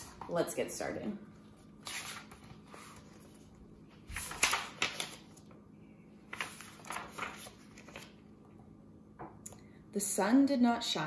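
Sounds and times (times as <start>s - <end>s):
book pages turning: 1.7s - 5.6s, 6.2s - 8.2s.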